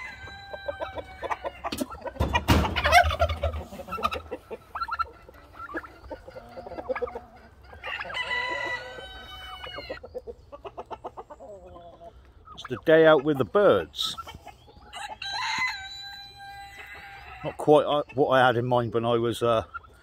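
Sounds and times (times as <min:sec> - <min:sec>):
rooster crowing: 0:00.0 - 0:01.7, 0:07.8 - 0:10.0, 0:14.9 - 0:17.5
chickens clucking: 0:00.0 - 0:20.0
turkey gobbling: 0:00.0 - 0:20.0.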